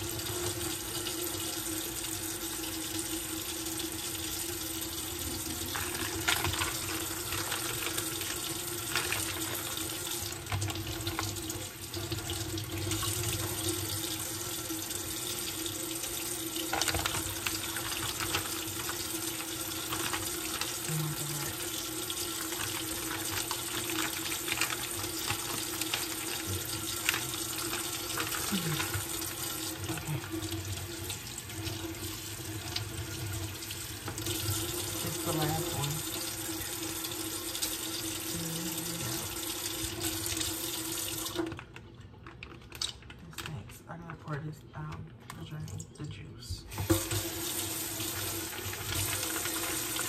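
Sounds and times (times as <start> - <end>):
faucet running into sink: 0.0 - 41.8, 46.7 - 50.0
small clicks handling packaging: 41.4 - 43.8.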